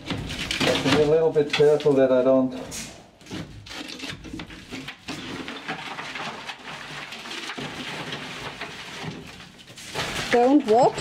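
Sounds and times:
wooden boards scraping and knocking: 0.0 - 11.0.

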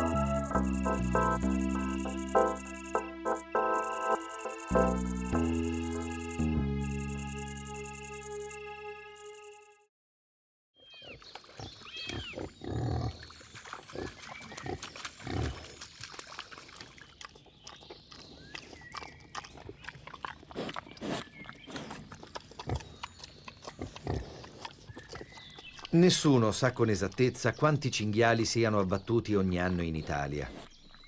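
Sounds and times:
sharp crackles and clicks: 0.0 - 8.6
wild boar grunting: 11.5 - 13.3, 18.5 - 26.1.

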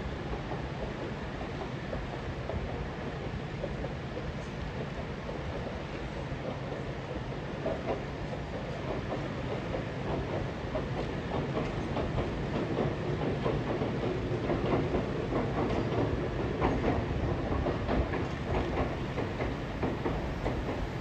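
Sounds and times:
distant train crossing steel bridge: 0.0 - 21.0
wheels clicking over rail joints: 7.5 - 21.0.

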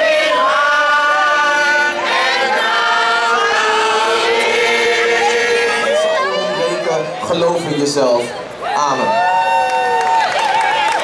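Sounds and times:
women singing together: 0.0 - 6.3.

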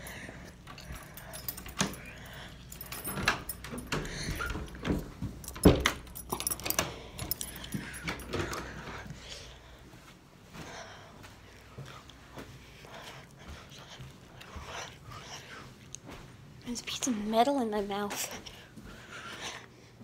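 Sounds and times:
keys jangling in a lock: 0.0 - 9.1
lock and door clicks and knocks: 2.9 - 7.4.

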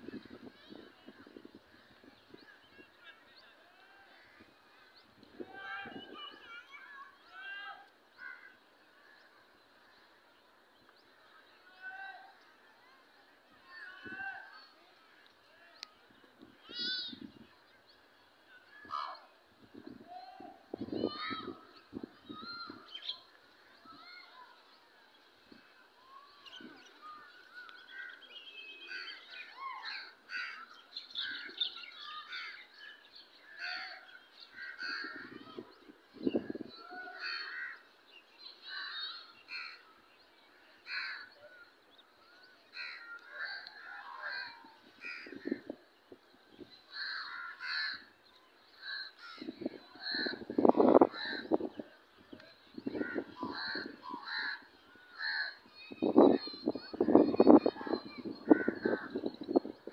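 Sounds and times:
small birds chirping: 0.0 - 59.9
crows cawing: 37.1 - 37.8, 46.9 - 48.1, 48.8 - 49.4, 53.0 - 55.6.

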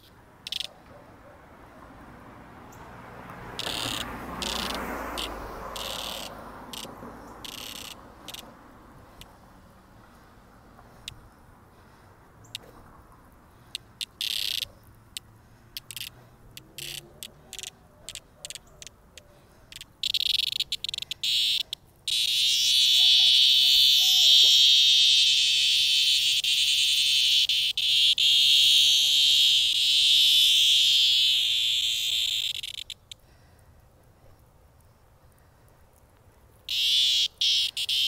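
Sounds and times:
cicada buzzing: 0.0 - 0.7, 2.7 - 10.2, 13.5 - 19.0, 19.7 - 33.2, 36.7 - 38.0.

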